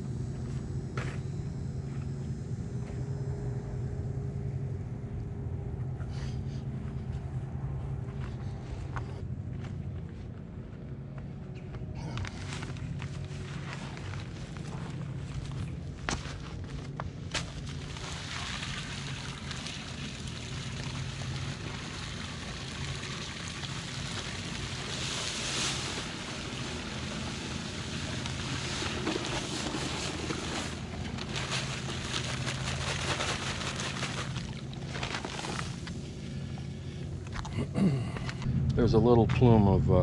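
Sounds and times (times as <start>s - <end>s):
steady low hum: 0.0s - 40.0s
powder pouring hiss: 17.7s - 36.6s
paper bag rustling: 23.9s - 36.0s.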